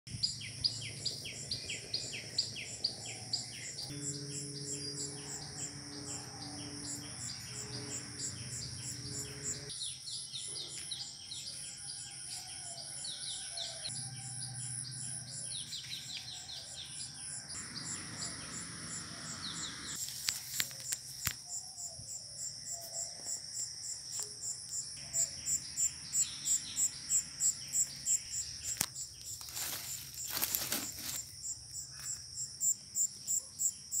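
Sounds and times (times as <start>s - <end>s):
birds chirping: 0.1s - 11.8s
insects pulsing chirr: 0.1s - 34.0s.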